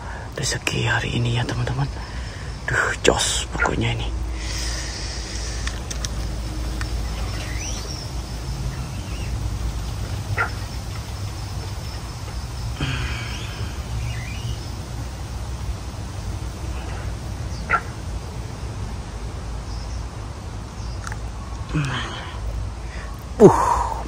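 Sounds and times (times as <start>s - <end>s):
low river rumble: 0.0s - 24.0s
bird calls: 0.7s - 18.6s.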